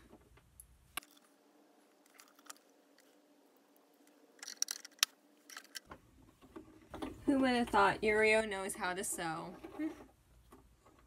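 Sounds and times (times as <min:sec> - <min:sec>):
faint steady hum: 0:00.0 - 0:11.0
small clicks and rustles: 0:02.0 - 0:03.2, 0:04.0 - 0:07.9.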